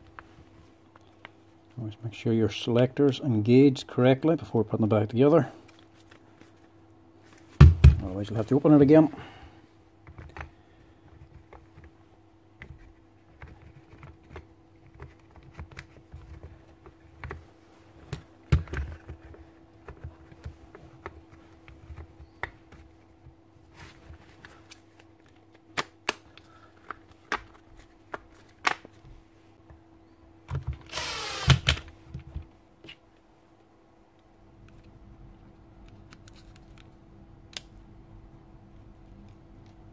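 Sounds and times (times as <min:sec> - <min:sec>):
cordless drill driving a screw: 0:30.9 - 0:31.8.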